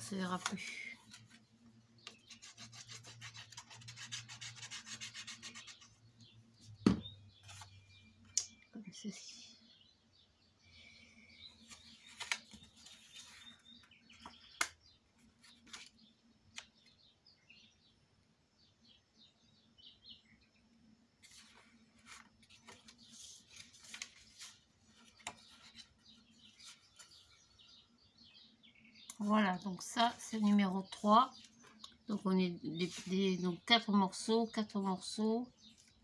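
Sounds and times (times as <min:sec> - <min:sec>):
cardstock rustling and crinkling: 0:11.6 - 0:14.6, 0:15.2 - 0:16.0, 0:21.2 - 0:27.3.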